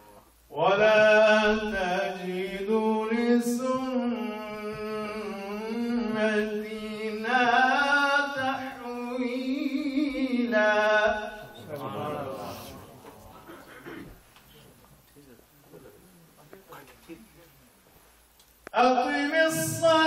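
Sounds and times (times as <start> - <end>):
man chanting into a microphone: 0.5 - 13.0, 18.7 - 20.0.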